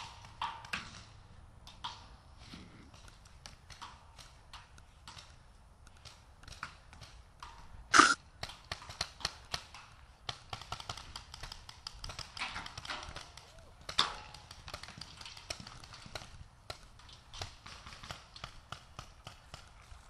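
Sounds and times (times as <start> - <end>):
paintball markers firing: 8.0 - 9.7.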